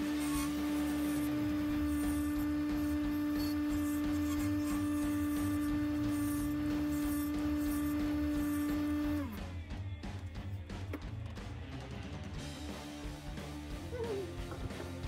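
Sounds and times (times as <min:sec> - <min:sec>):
lathe motor whining: 0:00.0 - 0:09.4.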